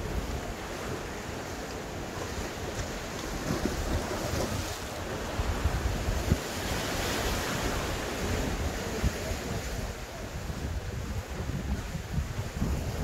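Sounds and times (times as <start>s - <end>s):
sea waves washing against rocks: 0.0s - 13.0s
wind buffeting microphone: 2.2s - 13.0s.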